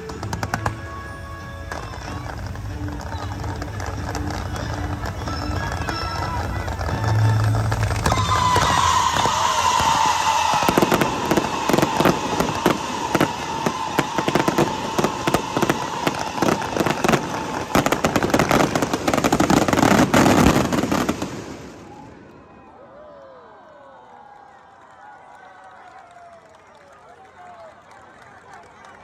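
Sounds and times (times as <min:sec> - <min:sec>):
fireworks bangs and crackling: 0:00.0 - 0:22.2.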